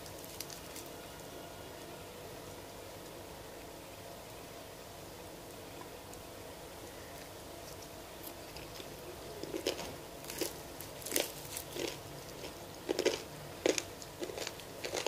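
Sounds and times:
fried chicken crunching: 0:00.0 - 0:00.9, 0:07.6 - 0:15.0.

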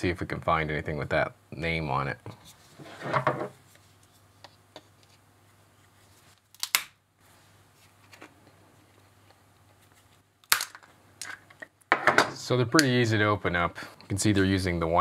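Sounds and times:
plastic case cracking: 0:10.4 - 0:11.4.

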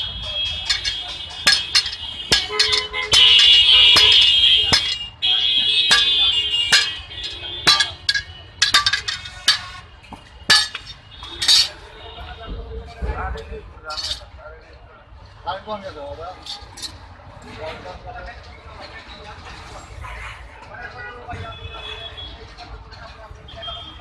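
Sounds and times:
hammers clanging on anvil: 0:00.2 - 0:05.2, 0:05.8 - 0:09.8, 0:10.4 - 0:11.8, 0:13.9 - 0:14.3.

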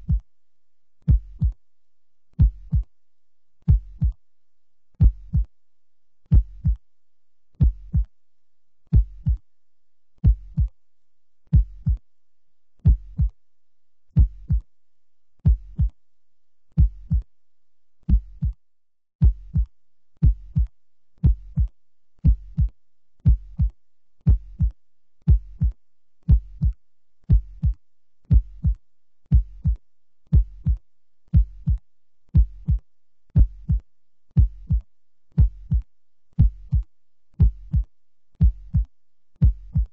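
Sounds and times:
heartbeat double thump: 0:01.1 - 0:01.6, 0:05.0 - 0:05.5, 0:07.6 - 0:08.1, 0:09.0 - 0:09.4, 0:10.2 - 0:10.7, 0:11.6 - 0:12.0, 0:12.9 - 0:13.4, 0:14.2 - 0:14.7, 0:15.5 - 0:15.9, 0:16.8 - 0:17.3, 0:19.2 - 0:22.7, 0:23.3 - 0:23.7, 0:24.3 - 0:24.7, 0:25.3 - 0:25.7, 0:26.3 - 0:31.8, 0:32.4 - 0:32.8, 0:33.4 - 0:33.8, 0:34.4 - 0:34.8, 0:35.4 - 0:35.8, 0:36.4 - 0:36.8, 0:37.4 - 0:37.8, 0:38.4 - 0:39.9.

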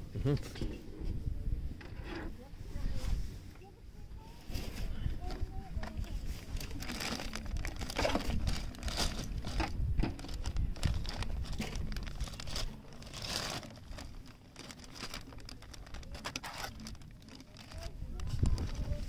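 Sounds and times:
crinkling handling noise: 0:02.9 - 0:19.0
wind on microphone: 0:04.5 - 0:12.6, 0:17.7 - 0:19.0.

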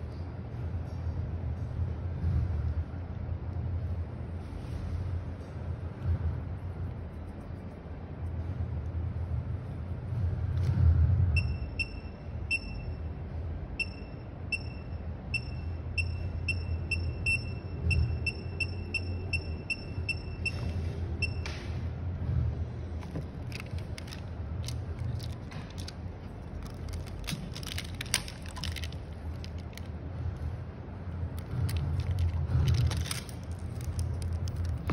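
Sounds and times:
steady low hum: 0:00.0 - 0:34.9
handling clicks and scrapes: 0:22.9 - 0:30.5, 0:31.4 - 0:34.9.

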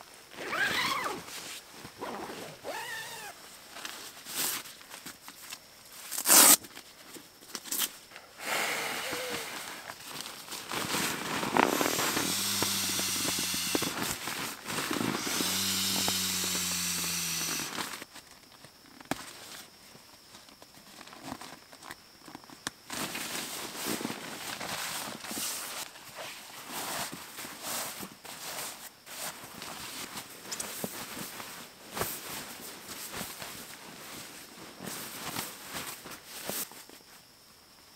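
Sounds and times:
air rushing from pump sack: 0:08.4 - 0:09.9, 0:10.7 - 0:18.0.

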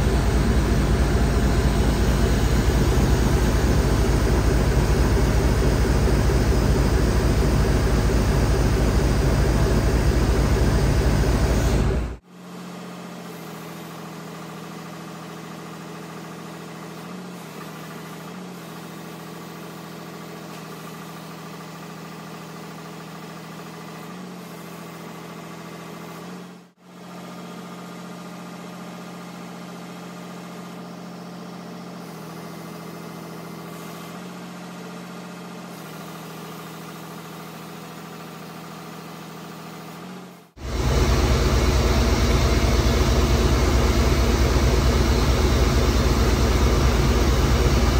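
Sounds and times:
diesel engine idling: 0:00.0 - 0:12.2, 0:40.6 - 0:47.9.

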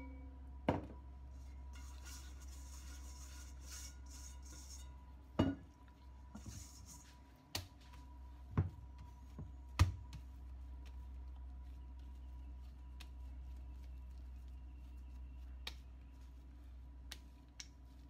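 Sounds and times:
hand scraping dough from steel bowl: 0:01.4 - 0:05.2, 0:06.3 - 0:07.3.

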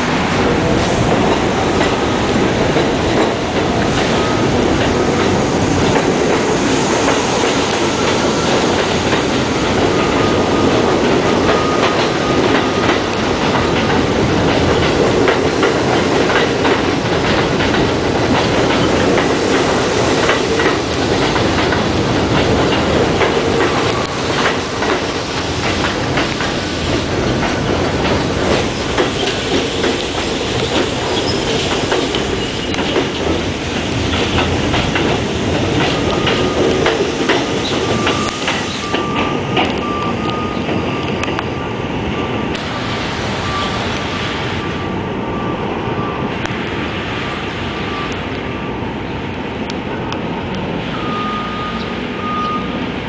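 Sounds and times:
train wheels clattering over rail joints: 0:00.0 - 0:41.5
approaching train whine: 0:00.0 - 0:53.0
train wheel squeal: 0:04.0 - 0:05.4, 0:06.4 - 0:13.1, 0:28.6 - 0:33.2, 0:35.8 - 0:42.4, 0:43.4 - 0:46.3, 0:50.3 - 0:52.8.

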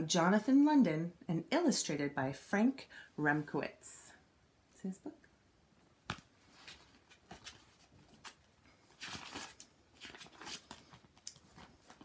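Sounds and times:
paper rustling: 0:06.4 - 0:12.0.

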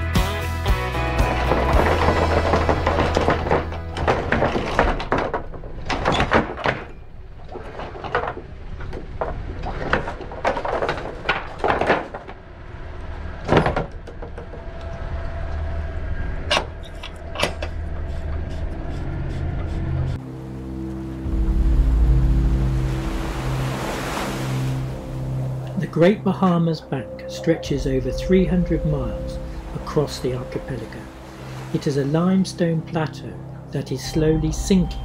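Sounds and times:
metal knocks: 0:01.3 - 0:12.4.

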